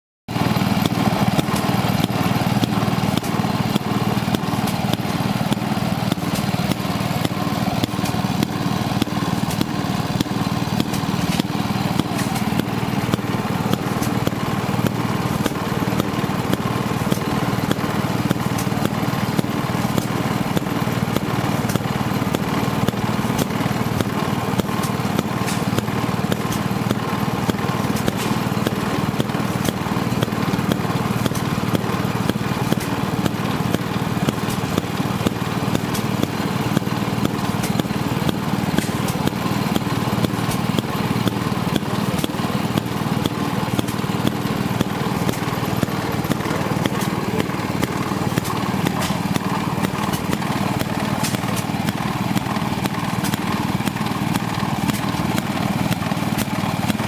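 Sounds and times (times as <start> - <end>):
small gas engine popping: 0.3 - 57.0.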